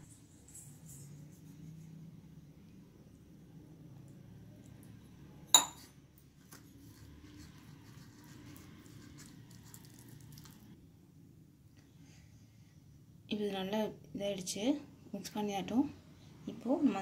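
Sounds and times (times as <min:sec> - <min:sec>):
steel tumbler clink: 0:05.5 - 0:05.9.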